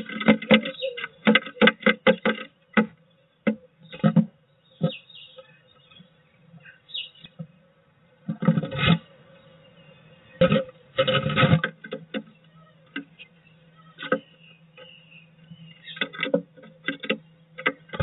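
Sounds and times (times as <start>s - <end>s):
bird scraping and tapping on wood: 0.0s - 5.5s, 8.2s - 9.1s, 10.4s - 13.3s, 14.0s - 18.0s
faint steady hum: 0.0s - 18.0s.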